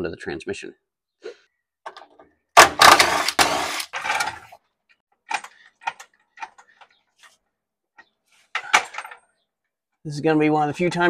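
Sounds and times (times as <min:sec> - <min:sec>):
metal equipment clattering: 0:08.6 - 0:09.2.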